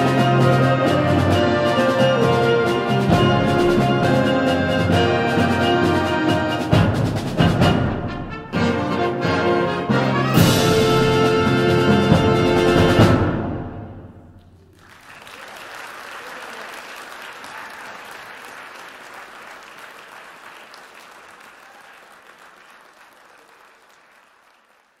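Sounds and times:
audience applause: 0:14.4 - 0:25.0.

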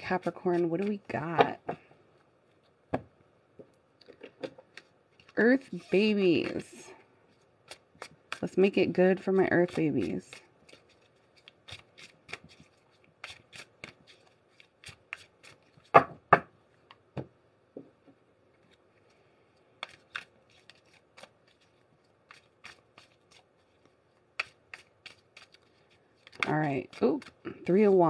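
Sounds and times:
cards being shuffled: 0:09.6 - 0:16.0, 0:19.8 - 0:28.0.

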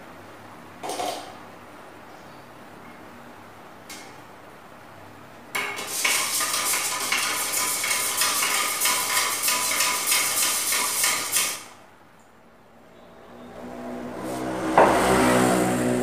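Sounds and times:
stirrer scraping a metal tin: 0:05.8 - 0:11.6.

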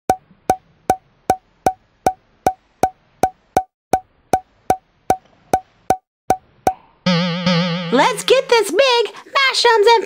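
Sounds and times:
wood-block clicks: 0:00.1 - 0:06.8.

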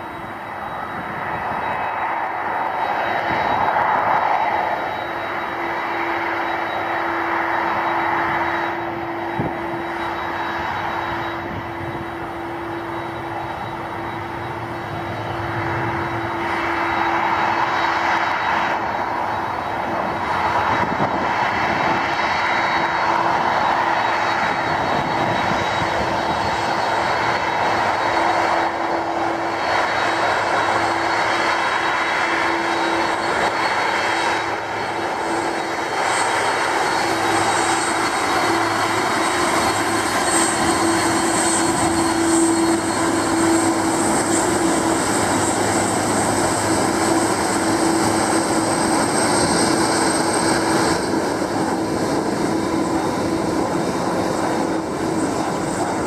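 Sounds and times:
jet engines whining: 0:00.0 - 0:56.0.

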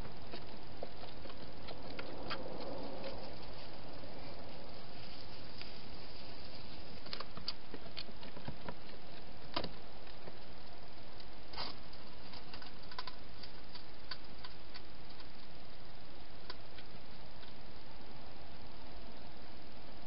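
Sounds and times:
camera steady hiss: 0:00.0 - 0:20.0
sharp clicks and ticks: 0:07.0 - 0:15.6.

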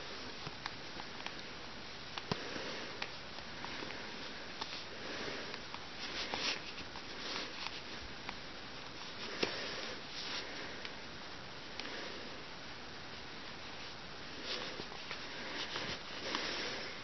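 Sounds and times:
stockings rustling: 0:02.2 - 0:10.9, 0:13.6 - 0:17.0.

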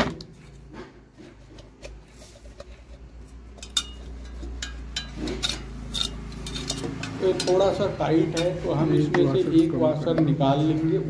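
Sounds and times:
metal rubbing: 0:00.5 - 0:09.8
light metal clinks and knocks: 0:03.5 - 0:09.9.

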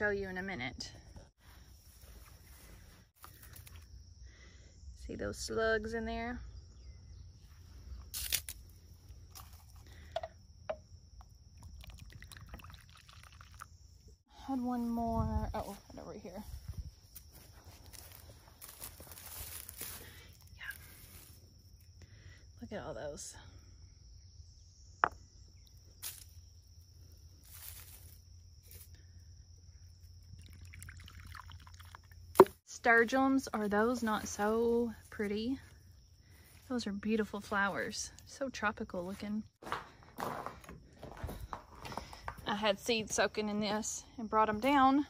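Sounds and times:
beer pouring and fizzing: 0:11.6 - 0:13.8, 0:30.4 - 0:32.5
high insect drone: 0:15.7 - 0:36.7
rustling of straw: 0:16.4 - 0:21.4, 0:27.2 - 0:29.0.

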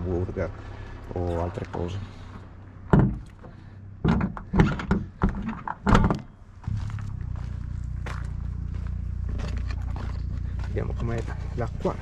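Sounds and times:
car trunk lid thunking shut: 0:02.9 - 0:03.2.

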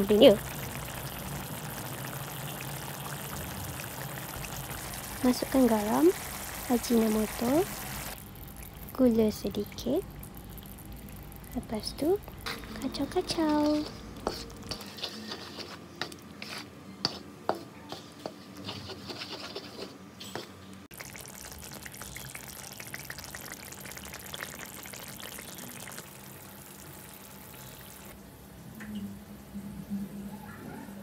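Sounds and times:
sauce bubbling: 0:00.0 - 0:09.1, 0:09.7 - 0:14.8, 0:20.9 - 0:28.2
spatula scraping a pan: 0:12.5 - 0:20.6.

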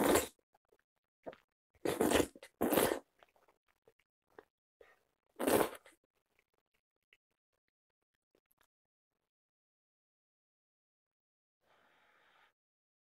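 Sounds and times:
loud noodle slurps: 0:00.0 - 0:00.4, 0:01.8 - 0:03.1, 0:05.4 - 0:05.9.

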